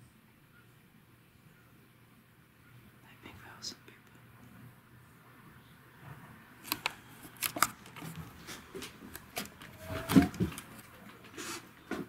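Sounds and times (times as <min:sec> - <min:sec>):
camera handling clicks and rustles: 0:06.6 - 0:11.0.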